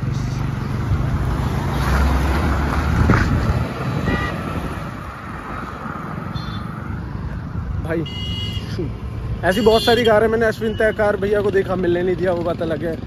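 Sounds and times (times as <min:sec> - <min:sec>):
car engine and exhaust passing by: 0:00.0 - 0:07.4.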